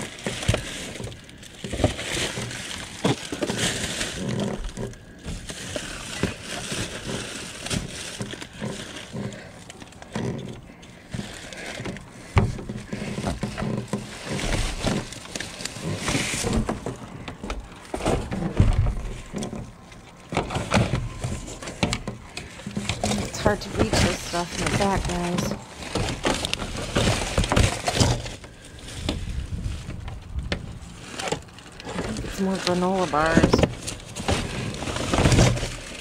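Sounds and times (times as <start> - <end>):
items knocking: 0.0 - 36.0
plastic bags rustling: 0.0 - 36.0
dull thumps: 10.1 - 30.8.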